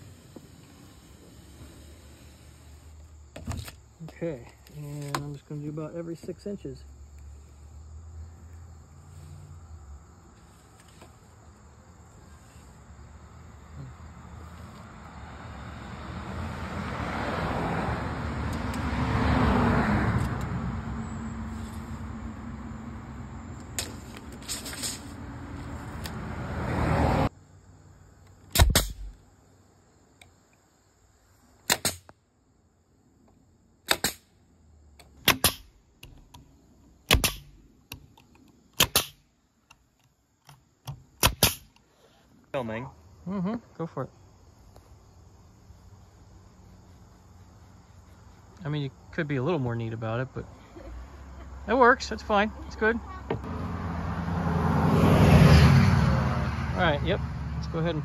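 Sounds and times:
brad nailer firing into plywood: 28.5 - 29.2, 35.2 - 35.7, 37.1 - 37.5, 38.8 - 39.2, 41.2 - 41.7.

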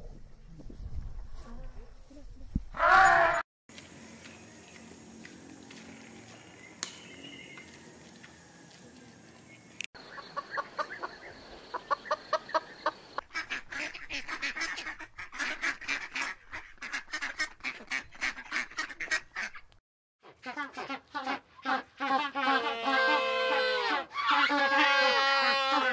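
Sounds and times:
hen clucking: 10.0 - 19.7
ducks quacking: 10.0 - 25.9.

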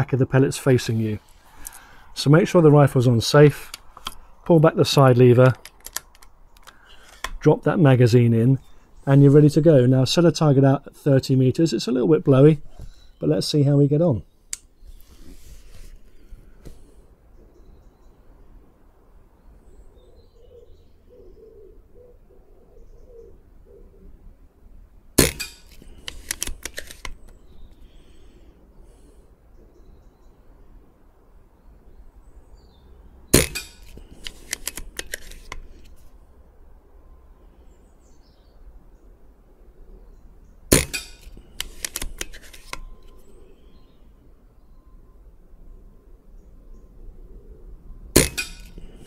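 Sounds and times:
metallic clicks of rifle lever: 3.6 - 4.2, 5.4 - 7.4, 25.2 - 27.4, 33.4 - 36.0, 40.8 - 43.3
air rifle shot crack: 25.2 - 25.7, 33.3 - 33.8, 40.7 - 41.3, 48.2 - 49.0.

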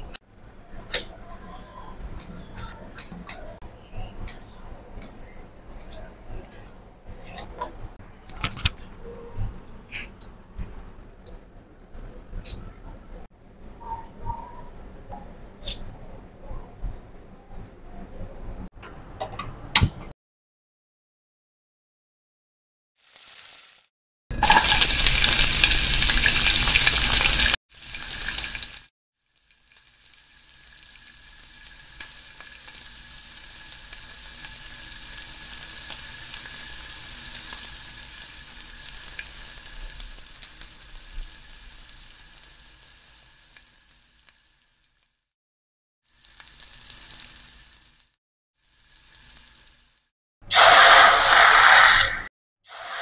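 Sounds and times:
water hissing in hot pan: 23.0 - 45.1, 46.1 - 53.0
onion frying in hot oil: 23.0 - 45.3, 46.0 - 51.5.

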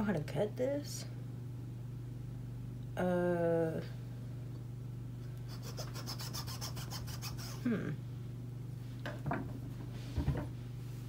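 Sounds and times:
knife sawing through pumpkin: 5.5 - 7.6.

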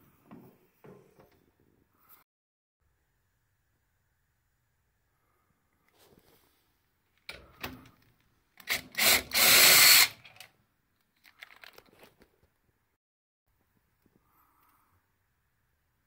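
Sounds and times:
power drill spinning: 8.6 - 10.5.

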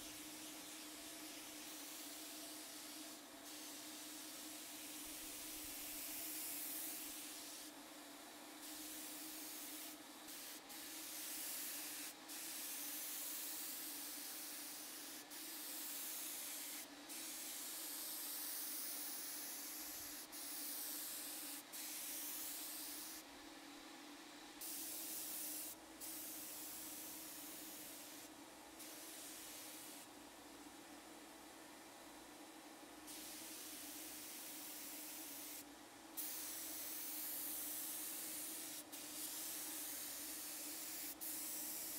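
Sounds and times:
paint spray gun hissing: 0.1 - 7.7, 8.7 - 23.2, 24.6 - 30.0, 33.1 - 35.6, 36.2 - 41.9.

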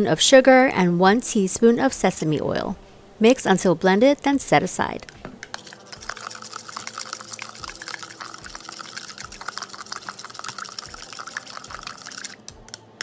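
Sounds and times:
metal spoon stirring thick sauce: 5.5 - 12.4.

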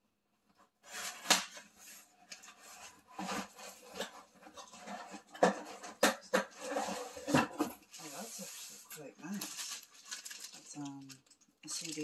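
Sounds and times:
cardboard scraping cardboard: 0.8 - 8.9.

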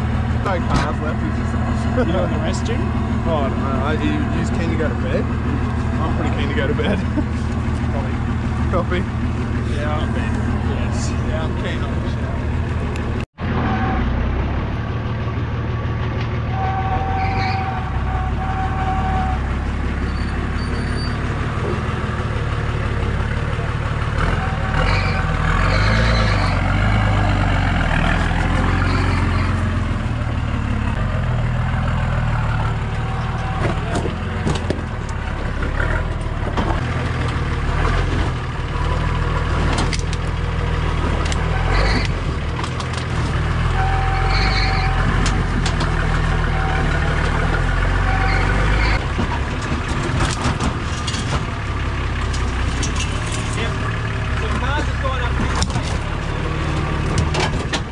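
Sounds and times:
off-road vehicle engine revving: 0.0 - 57.9.

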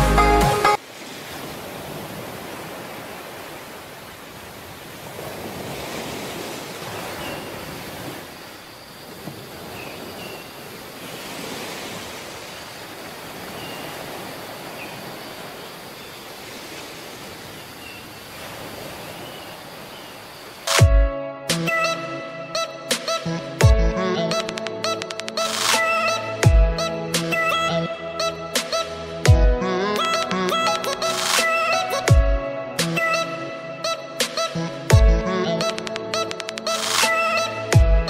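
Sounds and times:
sea waves washing on shore: 0.8 - 20.8.

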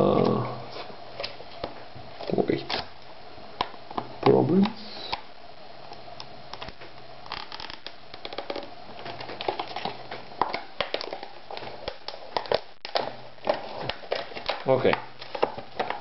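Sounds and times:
plastic packaging crackling: 6.5 - 16.0.

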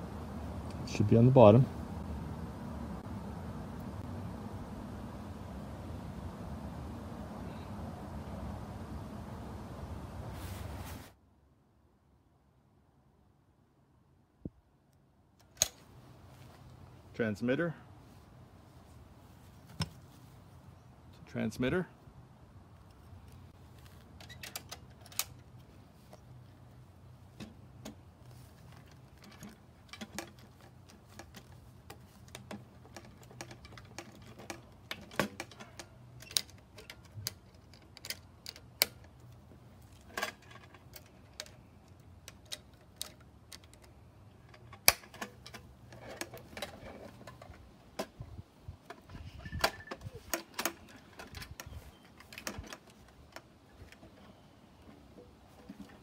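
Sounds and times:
clicks and knocks of handled equipment: 22.8 - 26.6, 27.3 - 48.2, 48.8 - 56.0.

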